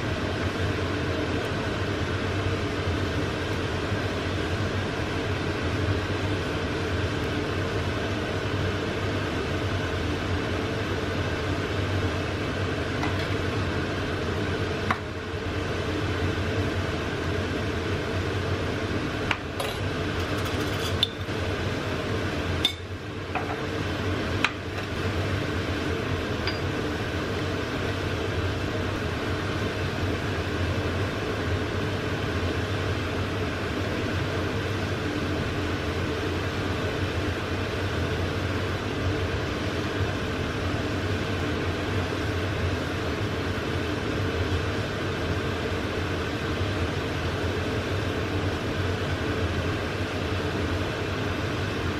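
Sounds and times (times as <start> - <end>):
kitchen hum: 0.0 - 51.9
pan simmering: 0.1 - 36.9.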